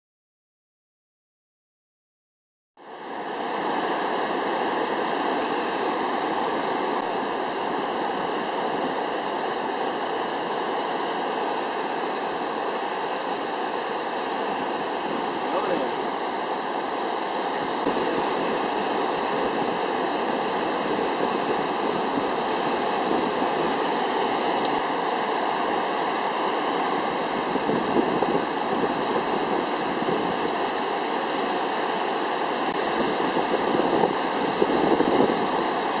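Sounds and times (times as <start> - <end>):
heavy surf breaking on rocks: 3.0 - 36.0.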